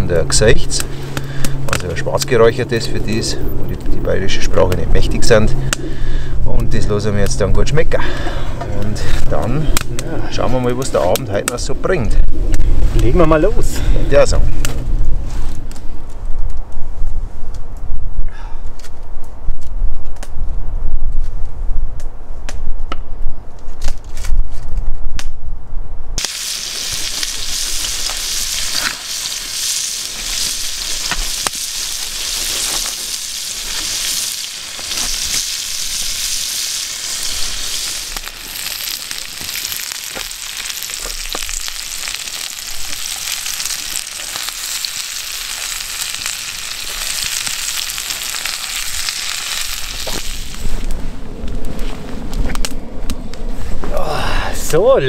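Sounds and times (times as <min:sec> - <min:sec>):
wind rumble on microphone: 0:02.0 - 0:26.2, 0:48.6 - 0:55.0
food sizzling in a pan: 0:26.2 - 0:50.8.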